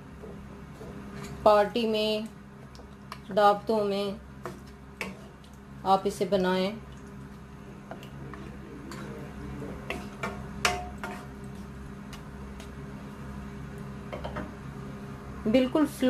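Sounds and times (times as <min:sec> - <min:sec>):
steady low hum: 0:00.0 - 0:16.0
spoon knocking and scraping pan: 0:09.8 - 0:11.4.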